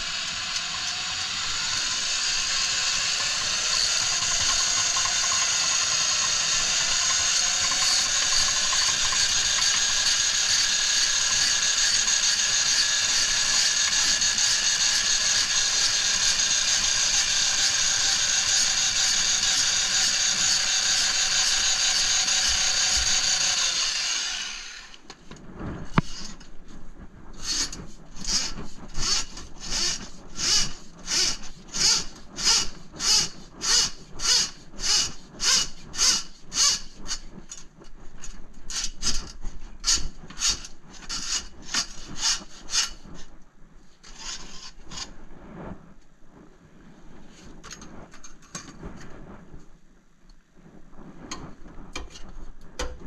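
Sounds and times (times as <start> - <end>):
drum auger motor whine: 0.0 - 25.1, 27.4 - 37.6
cable scraping: 0.0 - 49.6.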